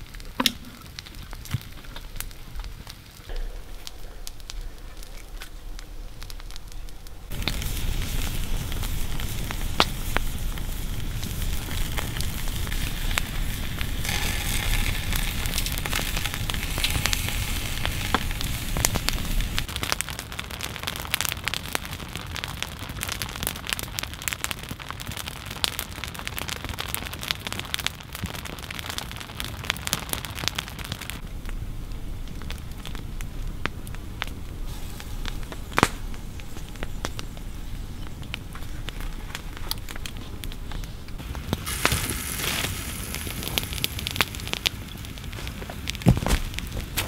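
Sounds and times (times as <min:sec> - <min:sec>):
campfire crackling and popping: 0:00.0 - 0:47.0
low fire rumble: 0:00.0 - 0:47.0
hiss: 0:07.2 - 0:19.7, 0:34.5 - 0:38.0, 0:40.7 - 0:44.4.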